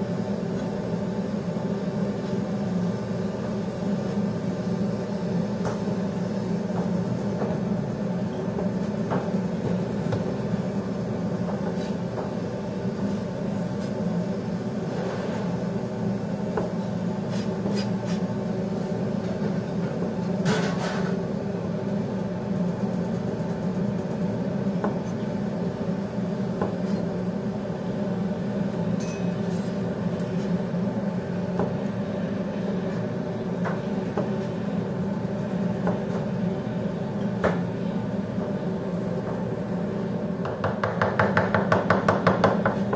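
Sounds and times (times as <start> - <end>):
kitchen machinery drone: 0.0 - 42.9.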